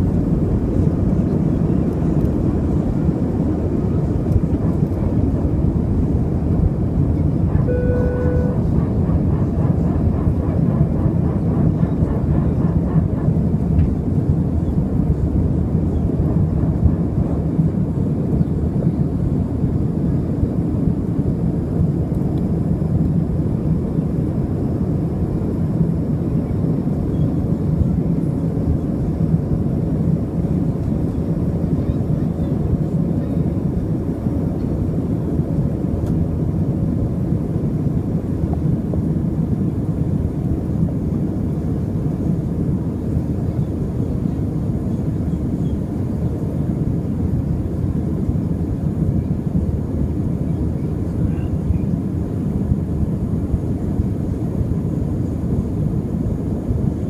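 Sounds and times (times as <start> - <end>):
jet engines rumbling: 0.0 - 57.0
short steady tone: 7.6 - 8.7.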